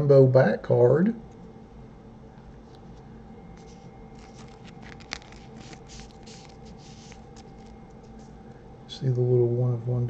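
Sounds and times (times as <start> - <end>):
plastic sleeve rustling: 3.6 - 8.3.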